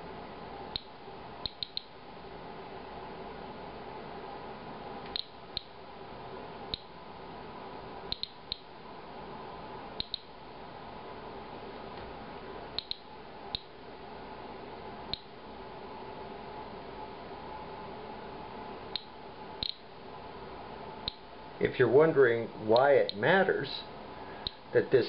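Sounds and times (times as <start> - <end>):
geiger counter clicking: 0.7 - 2.0, 5.1 - 5.8, 6.7 - 6.9, 8.1 - 8.7, 10.0 - 10.3, 12.8 - 13.7, 15.1 - 15.3, 18.9 - 19.8, 21.0 - 21.2.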